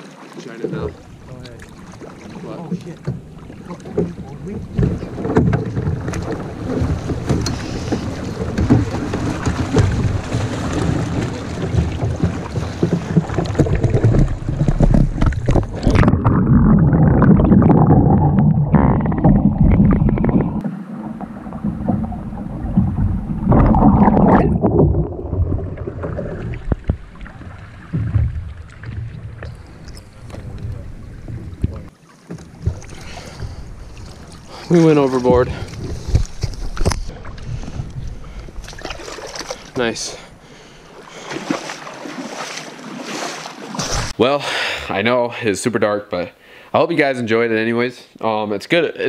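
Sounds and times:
water sloshing and splashing: 0:00.0 - 0:44.2
heavy splashing and thrashing: 0:00.0 - 0:44.3
muffled underwater sound: 0:13.4 - 0:28.2.

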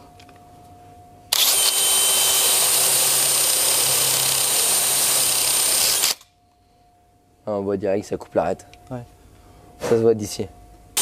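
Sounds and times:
drill grinding with high whine: 0:01.3 - 0:06.2.

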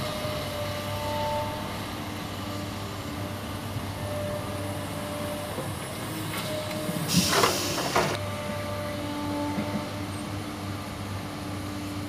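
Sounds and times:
excavator working: 0:00.0 - 0:12.0
air brakes hissing: 0:06.9 - 0:08.2.

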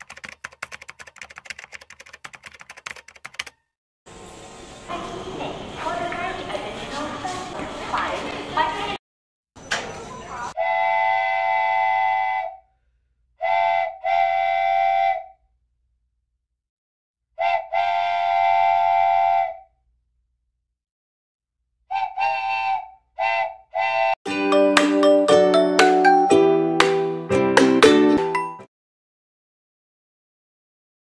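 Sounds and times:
train horn blasts: 0:10.6 - 0:12.6, 0:17.4 - 0:19.5.

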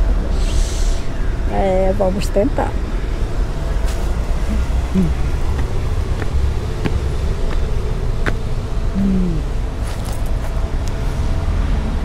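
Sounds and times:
steady low rumble: 0:00.0 - 0:11.4
footsteps on pavement: 0:03.8 - 0:08.6.

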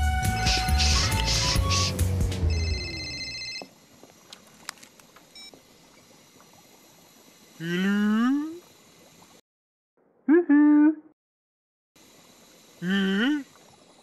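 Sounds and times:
electronic telephone tone: 0:02.4 - 0:03.7.

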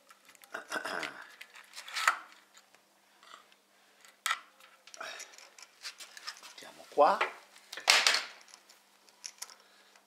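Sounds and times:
small metal parts clicking and scraping: 0:00.0 - 0:00.6, 0:01.2 - 0:06.7, 0:08.4 - 0:10.0.

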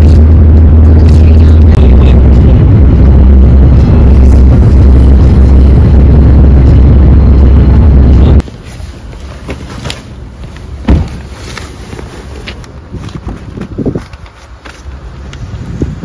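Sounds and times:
car wind and road noise: 0:00.0 - 0:16.0
sharp thump: 0:10.9 - 0:11.2.

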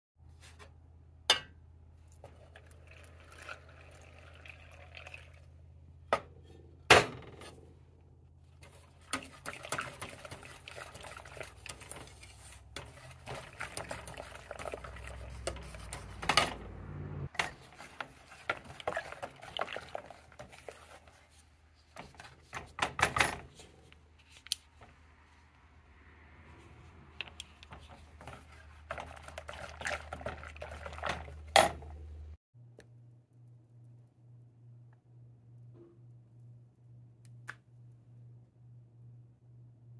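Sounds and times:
whisk tapping a pot: 0:08.6 - 0:16.3, 0:17.4 - 0:21.3, 0:27.9 - 0:31.8
whisk scraping in a saucepan: 0:08.6 - 0:16.4, 0:17.4 - 0:22.7, 0:27.8 - 0:31.5.

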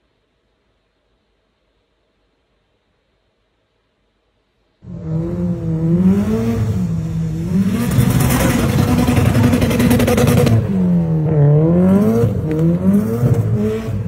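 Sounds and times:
car engine revving hard: 0:04.8 - 0:14.0.

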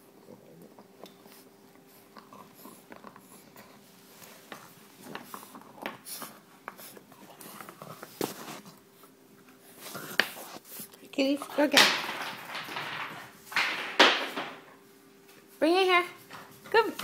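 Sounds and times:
puppy snuffling and chewing: 0:00.0 - 0:11.7.

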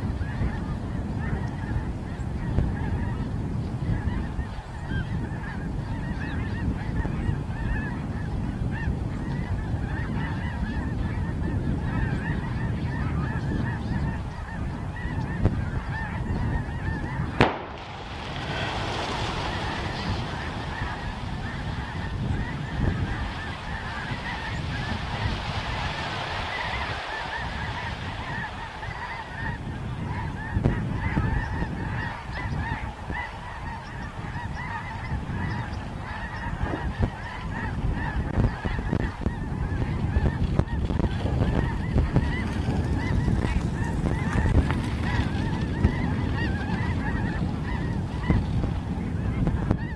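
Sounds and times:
geese honking: 0:00.2 - 0:49.9
sharp bang: 0:17.4 - 0:22.5
rushing hiss of flock taking off: 0:17.4 - 0:29.9.

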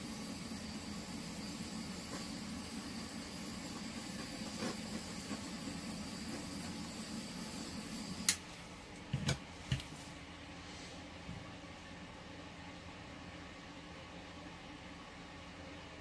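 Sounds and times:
fan hiss and hum: 0:00.0 - 0:16.0.

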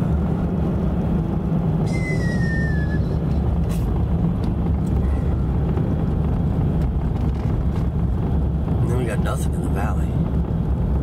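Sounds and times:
vehicle engine and tyres rumbling: 0:00.0 - 0:11.0
thin high squeak: 0:01.8 - 0:03.2, 0:05.0 - 0:05.5.

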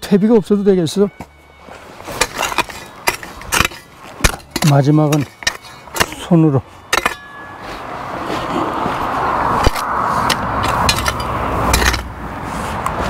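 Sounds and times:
car driving past: 0:07.4 - 0:13.0.

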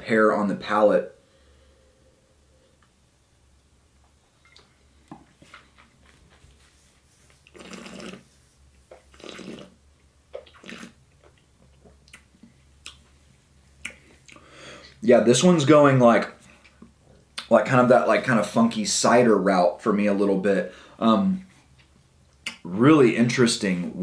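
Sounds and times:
wet mouth clicks: 0:07.4 - 0:08.3, 0:08.9 - 0:09.7, 0:10.3 - 0:13.0, 0:13.8 - 0:14.4, 0:22.3 - 0:22.6.

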